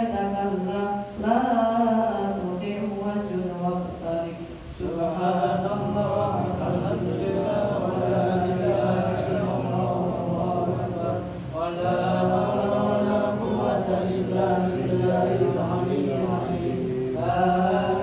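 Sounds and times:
boy chanting into a microphone: 0.0s - 18.0s.

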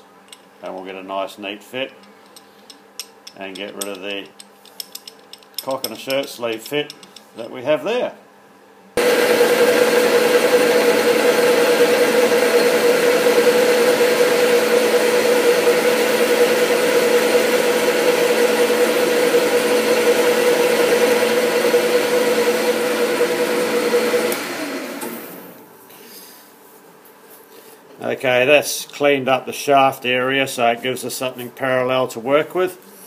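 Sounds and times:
metal lathe humming and whining: 9.0s - 25.5s.

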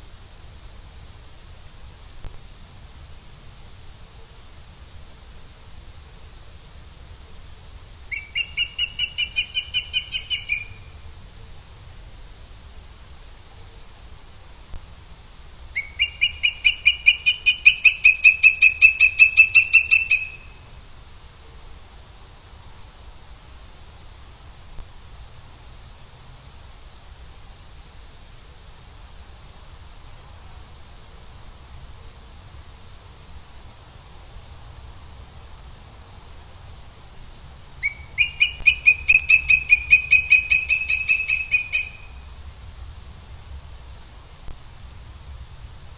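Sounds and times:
eagle calling rapid high notes: 8.1s - 10.8s, 37.8s - 42.2s.

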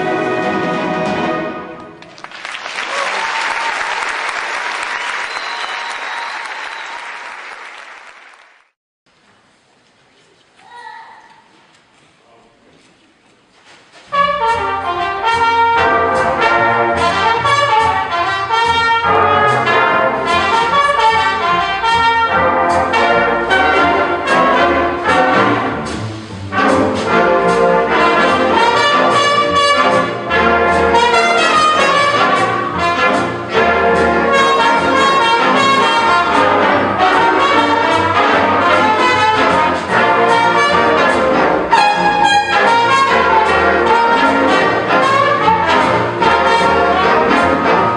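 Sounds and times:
big band playing: 0.0s - 8.6s, 14.0s - 47.9s.

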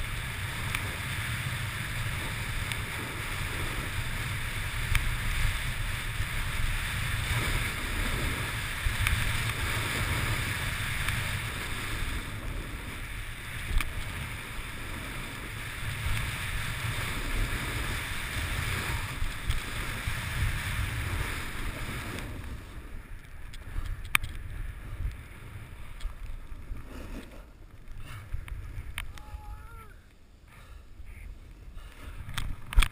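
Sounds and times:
snowboard hissing through snow: 0.0s - 23.1s, 26.7s - 28.3s
wind rushing over microphone: 0.0s - 30.1s.

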